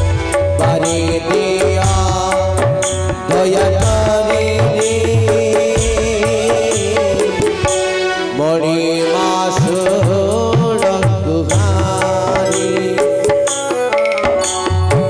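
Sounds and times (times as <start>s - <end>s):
tabla playing: 0.0s - 15.0s
wavering melody with drone: 11.6s - 15.0s.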